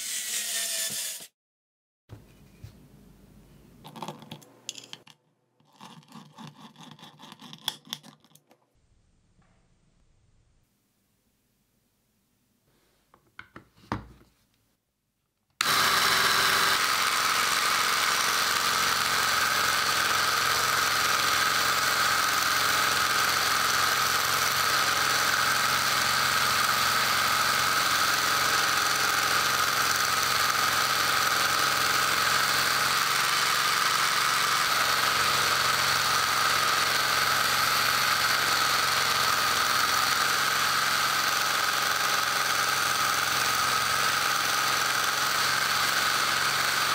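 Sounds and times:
belt sander whining: 15.6 - 46.9.

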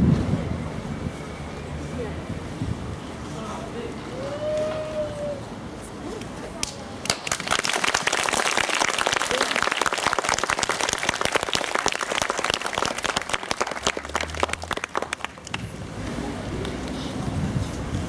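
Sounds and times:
audience applauding: 7.0 - 15.7.

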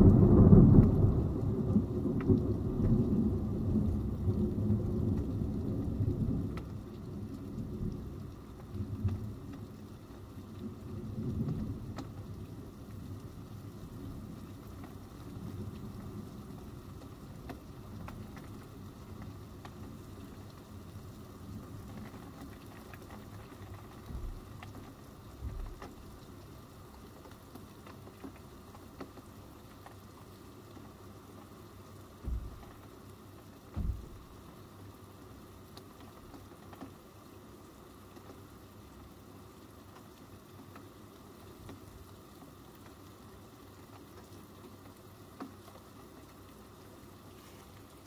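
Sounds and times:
low thunder rumble: 0.0 - 8.2, 32.2 - 32.7, 33.8 - 34.4
rain pattering: 0.0 - 48.0
short low thumps: 32.2 - 32.7, 33.8 - 34.3.

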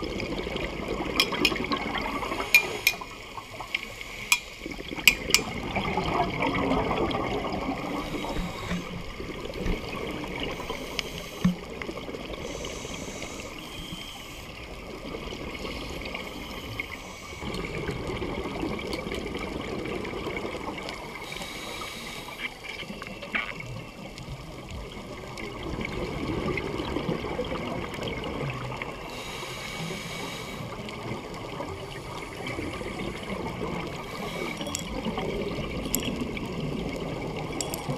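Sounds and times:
exhaled bubbles gurgling underwater: 0.0 - 37.9
regulator inhalation hiss: 7.9 - 9.2, 10.4 - 11.7, 12.4 - 14.7, 21.2 - 22.7, 29.1 - 30.8, 34.0 - 34.6.

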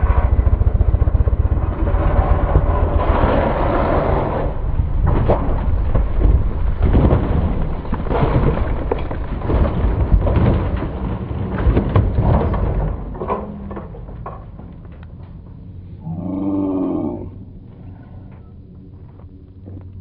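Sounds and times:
low engine rumble: 0.0 - 20.0
motorcycle scraping on gravel: 1.8 - 4.7.

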